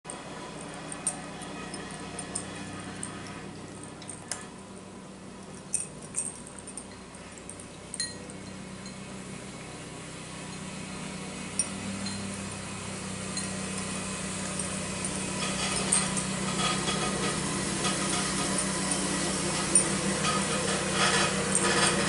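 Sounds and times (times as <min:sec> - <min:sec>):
clinks against ceramic bowl: 0:05.7 - 0:09.1, 0:11.6 - 0:12.4, 0:13.3 - 0:22.0.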